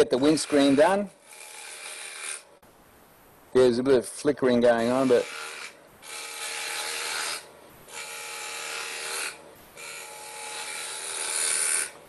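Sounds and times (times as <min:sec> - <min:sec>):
lathe tool shaving wood: 0:00.2 - 0:02.4, 0:05.2 - 0:11.9.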